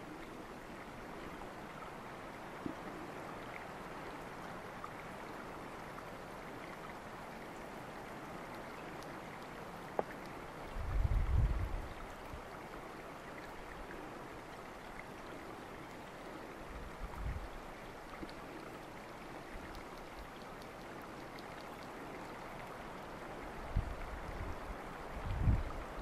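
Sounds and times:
stream water flowing: 0:00.0 - 0:26.0
wind rumble on microphone: 0:10.6 - 0:12.5, 0:16.6 - 0:17.6, 0:23.4 - 0:26.0.

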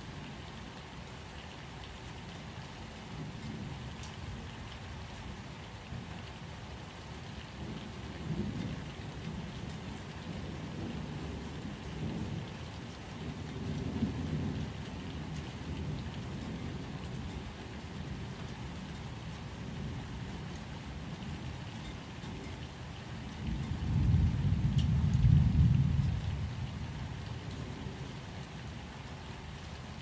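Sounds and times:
steady rain: 0:00.0 - 0:30.0
thunder rumbling: 0:23.5 - 0:26.9.

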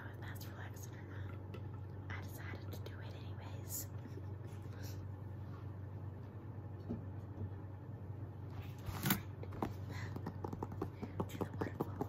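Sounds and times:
book scraping: 0:08.7 - 0:09.3.

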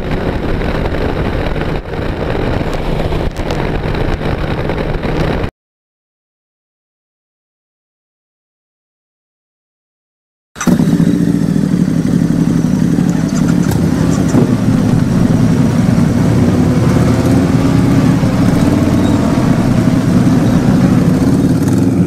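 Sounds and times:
motorcycle engine running: 0:00.0 - 0:05.5, 0:10.6 - 0:22.0
wind rush: 0:00.0 - 0:05.5, 0:12.4 - 0:22.0.

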